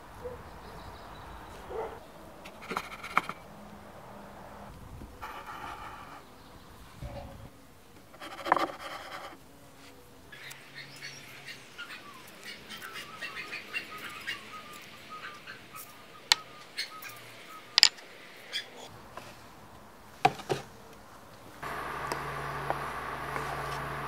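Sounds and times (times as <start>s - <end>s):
small birds chirping: 0.0s - 3.4s, 5.2s - 7.5s, 10.3s - 18.9s
steady hum: 21.6s - 24.0s.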